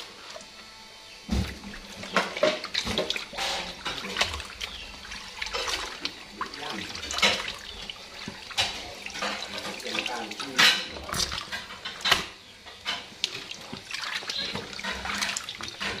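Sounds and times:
water splashing in a basin: 1.3s - 16.0s.

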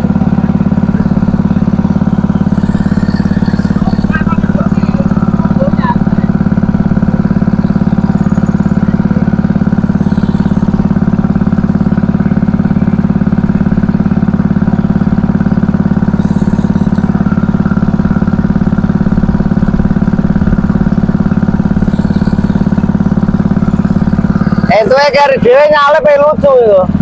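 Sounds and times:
small engine chugging: 0.0s - 27.0s.

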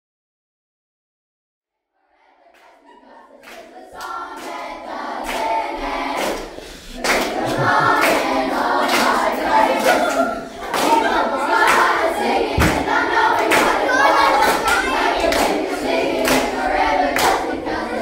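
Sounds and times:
group of voices singing: 2.0s - 18.0s.

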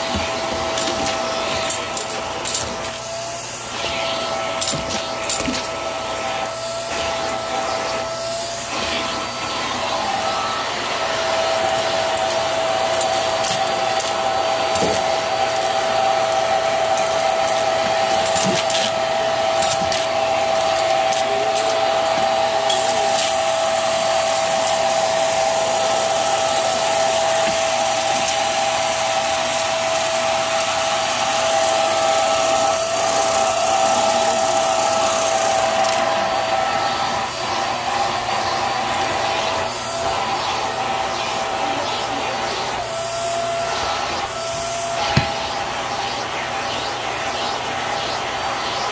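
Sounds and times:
vacuum cleaner whining: 0.0s - 48.9s.

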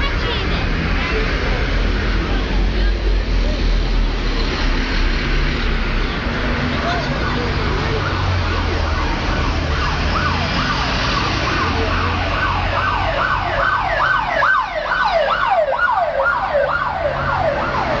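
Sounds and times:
emergency vehicle siren: 5.3s - 18.0s.

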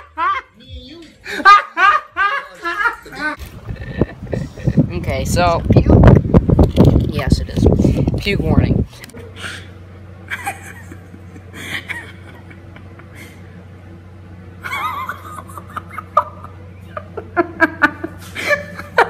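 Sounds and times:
steady low hum: 0.0s - 19.0s
person snickering and laughing: 1.2s - 4.9s, 10.3s - 13.5s, 14.6s - 19.0s.

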